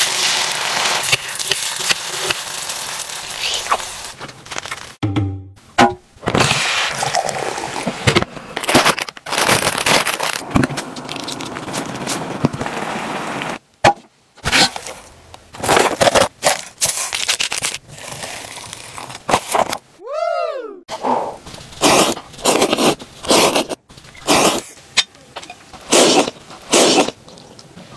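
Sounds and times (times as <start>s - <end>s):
plastic packaging crackling: 0.0s - 5.0s, 8.6s - 12.2s, 15.6s - 19.8s.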